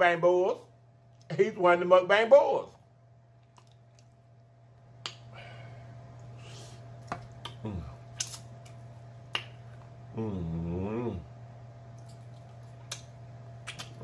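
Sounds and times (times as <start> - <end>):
low steady hum: 0.0 - 14.0
person humming: 7.4 - 8.0, 10.1 - 11.3
meat tearing by hand: 7.4 - 8.8.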